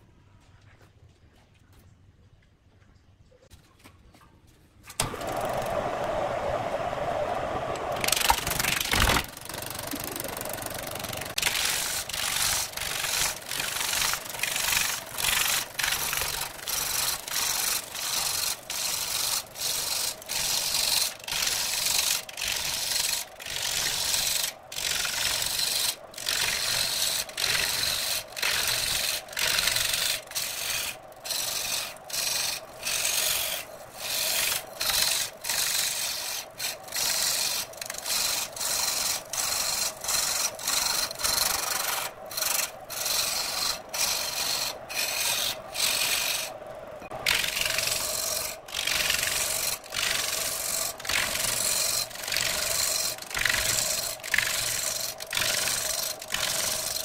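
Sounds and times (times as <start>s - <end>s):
gouge scraping spinning wood: 5.0s - 57.0s
lathe humming: 5.0s - 57.0s.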